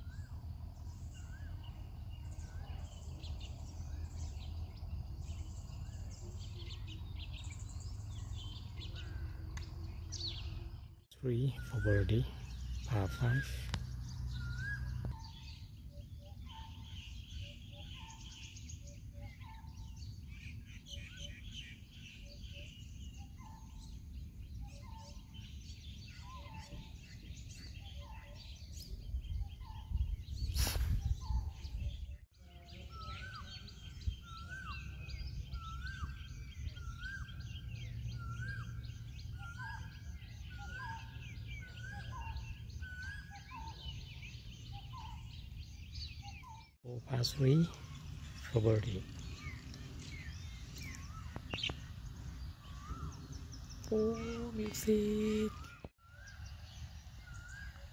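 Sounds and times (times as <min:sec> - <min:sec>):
higher bird chirps: 0:00.0 - 0:57.9
rising bird call: 0:32.5 - 0:57.9.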